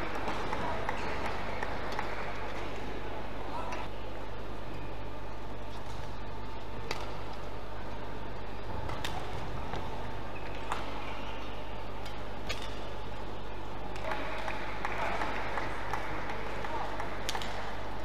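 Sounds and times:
steady hall hum: 0.0 - 18.0
racket striking shuttlecock: 17.0 - 17.7.

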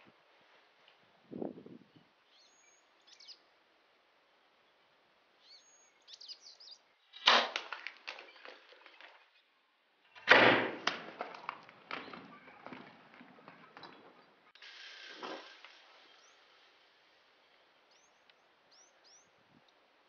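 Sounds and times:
birds chirping: 1.9 - 3.5, 4.3 - 7.3, 11.4 - 14.6, 15.2 - 19.4.

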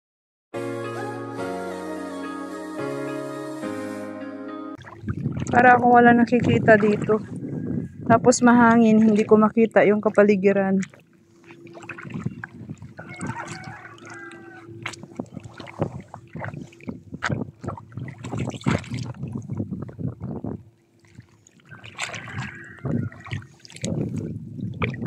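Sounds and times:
footsteps splashing in shallow water: 4.8 - 7.5, 8.5 - 25.0
wind buffeting microphone: 4.8 - 11.0, 11.6 - 25.0.

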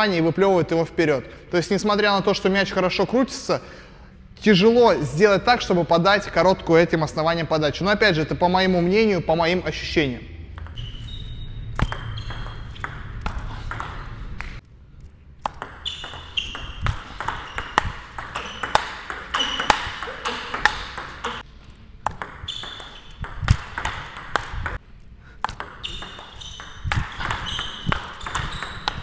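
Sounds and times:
table tennis ball clicking: 15.4 - 24.8, 25.4 - 29.0.

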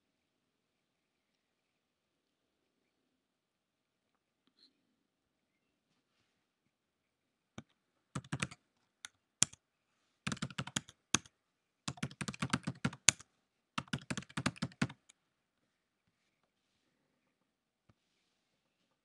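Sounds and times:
typing on computer keyboard: 8.2 - 9.6, 10.3 - 11.3, 11.9 - 13.2, 13.8 - 15.1.

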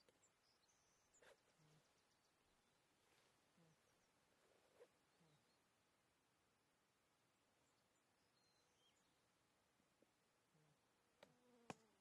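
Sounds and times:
faint high bird chirps: 0.0 - 2.8, 7.6 - 9.2.

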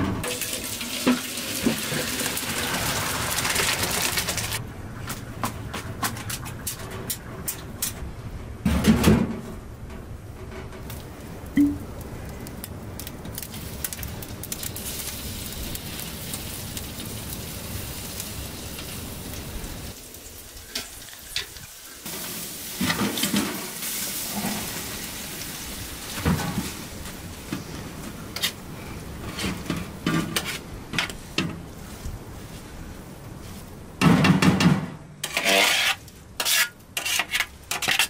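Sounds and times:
food sizzling in hot oil: 0.2 - 4.6, 13.4 - 27.0
utensil scraping a pan: 35.2 - 38.0.

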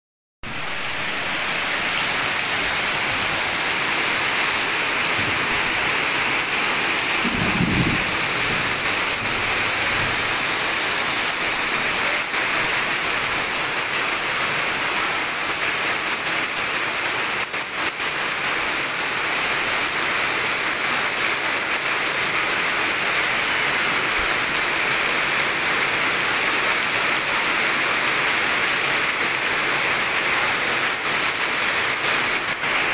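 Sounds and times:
heavy rain on pavement: 0.4 - 32.9
rainwater streaming: 0.4 - 32.9
low rumble: 7.0 - 10.2.

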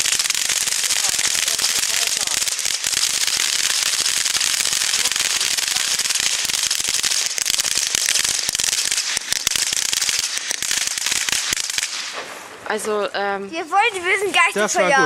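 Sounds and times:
firework fountain hissing and crackling: 0.0 - 13.0.

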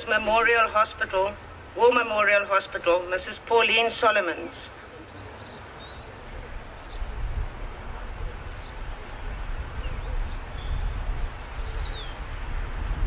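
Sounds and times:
wind rumbling on microphone: 5.8 - 13.0.

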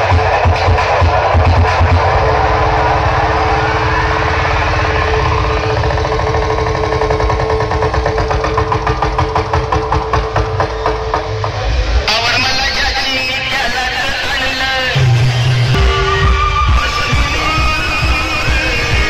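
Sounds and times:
fast stuttering beat: 0.0 - 19.0
loud electronic music: 0.0 - 19.0
falling sweep: 1.2 - 8.9.

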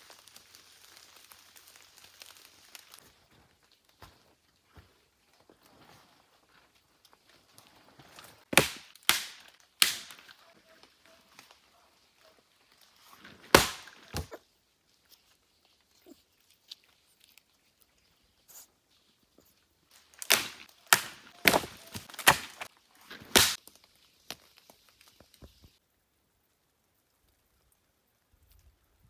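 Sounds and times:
wooden branches cracking: 0.0 - 4.2, 6.5 - 14.4, 19.9 - 25.8.

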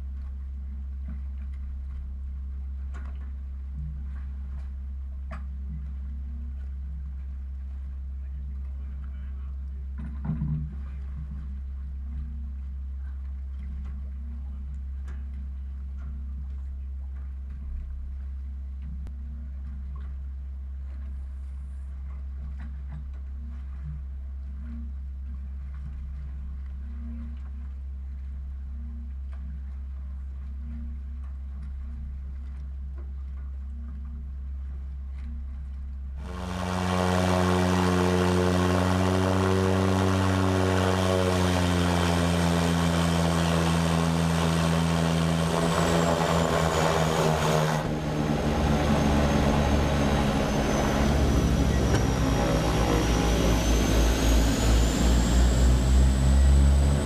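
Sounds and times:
turboprop engines and propellers: 0.0 - 28.2, 36.2 - 57.0
low hum: 0.0 - 57.0.

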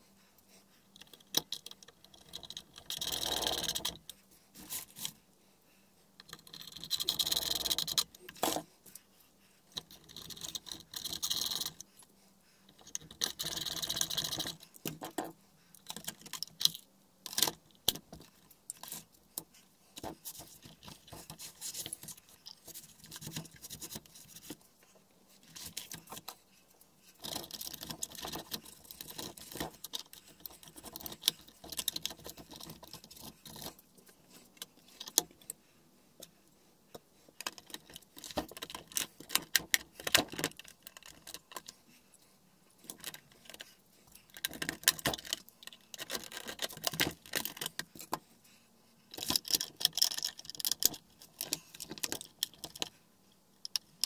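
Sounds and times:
coffee machine parts clicking and rattling: 27.2 - 33.8.

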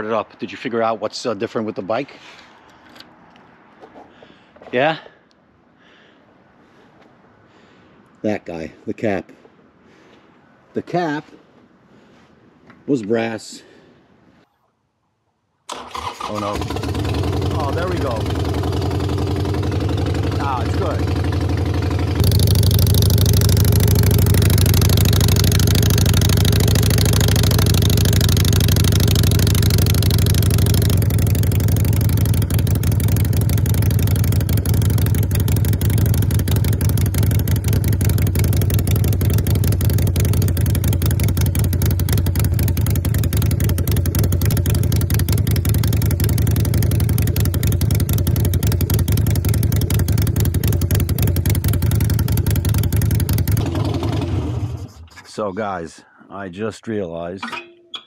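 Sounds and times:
motorcycle engine idling: 15.7 - 55.0.

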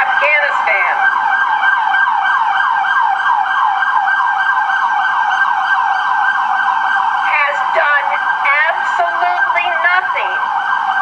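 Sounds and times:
siren in fast yelp: 0.0 - 11.0.

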